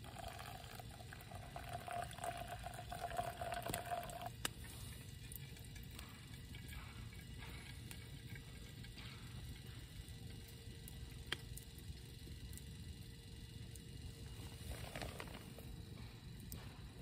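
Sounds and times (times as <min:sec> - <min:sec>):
water boiling: 0:00.0 - 0:17.0
faint crackle: 0:13.7 - 0:15.7.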